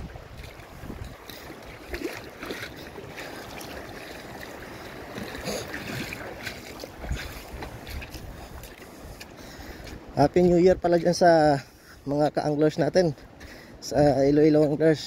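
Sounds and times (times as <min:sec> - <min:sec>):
wind on microphone: 0:00.0 - 0:09.4
water lapping among rocks: 0:00.0 - 0:12.0.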